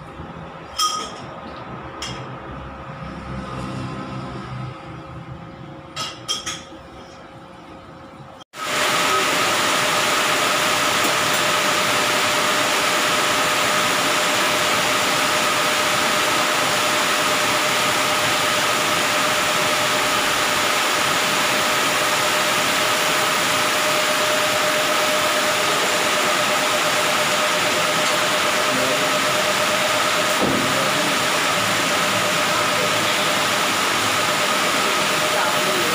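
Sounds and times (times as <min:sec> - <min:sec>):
mid-pitched machine whine: 0:08.6 - 0:35.9.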